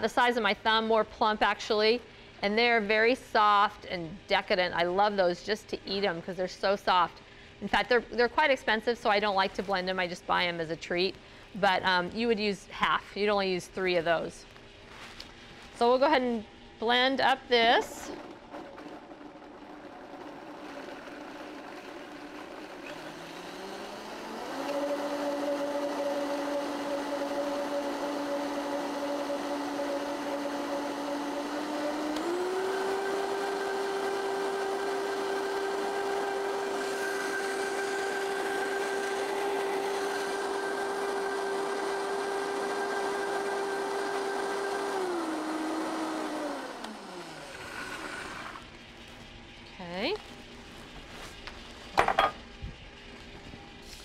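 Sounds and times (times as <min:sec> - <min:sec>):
blender motor pureeing: 0:17.5 - 0:49.1.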